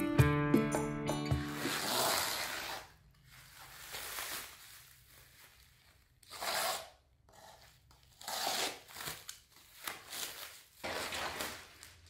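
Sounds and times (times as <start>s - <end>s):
packing tape tearing: 1.5s - 4.8s, 6.2s - 7.0s, 8.1s - 11.9s
plastic wrap crinkling and tearing: 1.5s - 6.8s, 8.1s - 12.0s.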